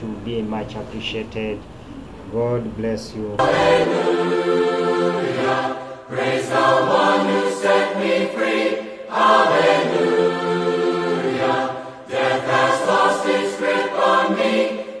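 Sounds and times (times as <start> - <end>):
children singing together: 3.4 - 15.0.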